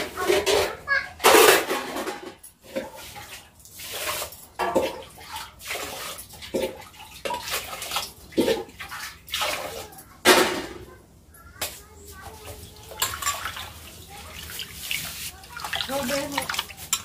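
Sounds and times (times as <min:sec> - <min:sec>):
water pouring into metal pot: 0:02.6 - 0:10.1, 0:12.6 - 0:17.0.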